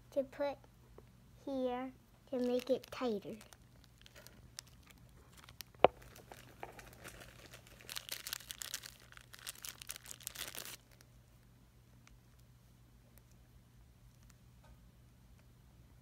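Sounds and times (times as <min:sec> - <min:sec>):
plastic bag crinkling: 0:02.3 - 0:11.1.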